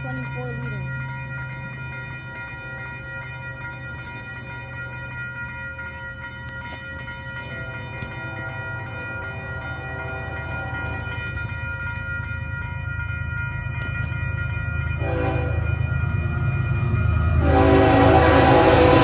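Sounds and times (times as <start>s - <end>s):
freight train rumble: 0.0s - 19.0s
level crossing warning bell: 0.0s - 19.0s.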